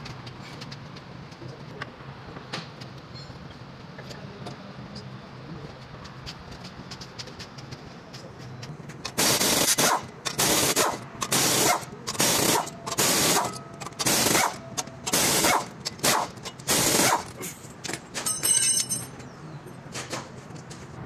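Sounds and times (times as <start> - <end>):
pneumatic impact wrench hammering: 9.0 - 18.6
metallic ringing: 18.2 - 19.2.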